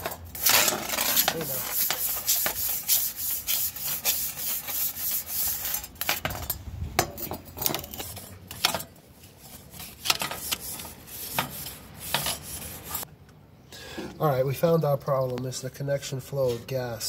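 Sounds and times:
grill brush scraping grill grates: 0.0 - 6.6, 7.4 - 13.1.

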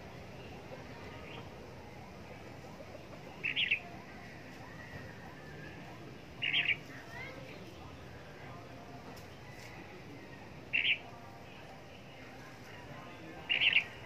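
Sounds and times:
bird calls: 2.8 - 8.2, 10.7 - 11.2, 13.2 - 14.0.

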